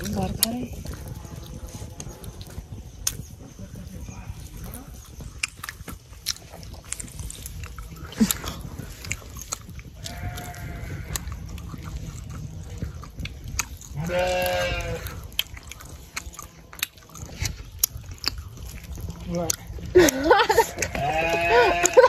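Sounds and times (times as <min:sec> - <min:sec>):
farm animal bleating: 0:10.0 - 0:11.4, 0:13.9 - 0:15.3, 0:20.5 - 0:22.0.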